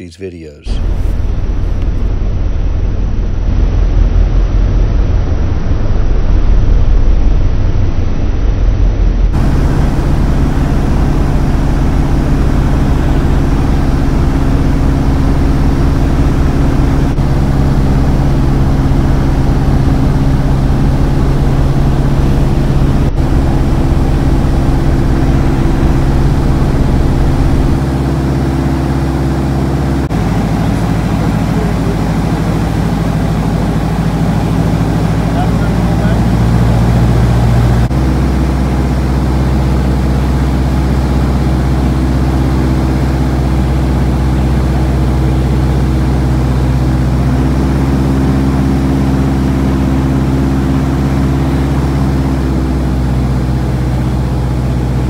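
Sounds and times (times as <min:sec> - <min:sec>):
aircraft engine and propeller drone: 0:00.0 - 0:55.0
wind rumble on microphone: 0:00.7 - 0:28.6.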